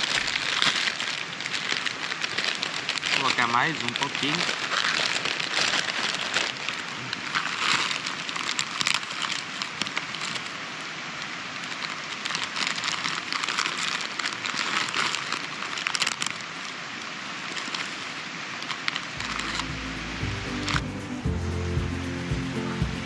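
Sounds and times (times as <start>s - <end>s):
plastic packet crinkling: 0.0s - 10.7s, 11.6s - 16.8s, 18.6s - 20.9s
steady rushing hiss: 0.0s - 23.0s.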